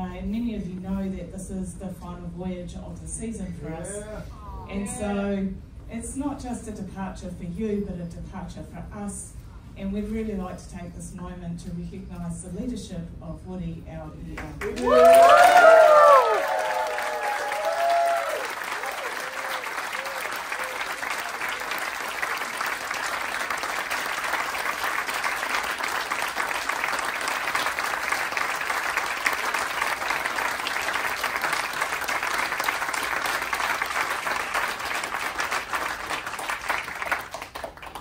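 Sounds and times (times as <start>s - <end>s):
audience applauding: 14.6s - 38.0s.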